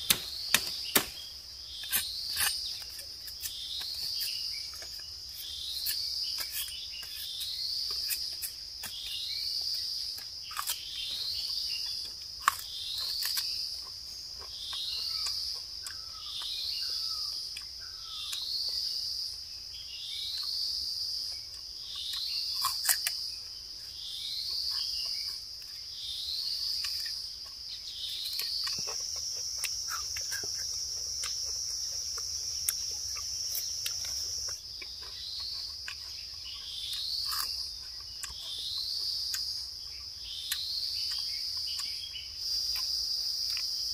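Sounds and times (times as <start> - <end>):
machete peeling bamboo clicks: 0.0 - 5.1.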